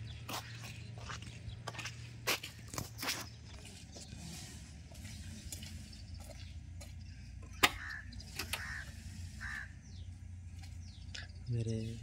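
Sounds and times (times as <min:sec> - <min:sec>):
footsteps on gravel: 0:00.0 - 0:07.9.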